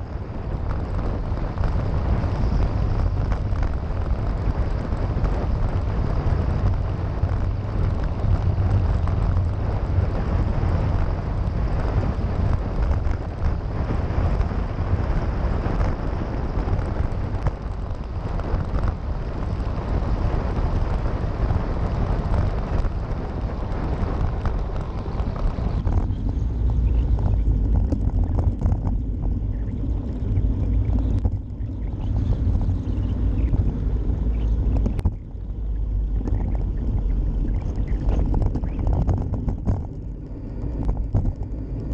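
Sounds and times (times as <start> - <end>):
wind buffeting microphone: 0.0 - 41.9.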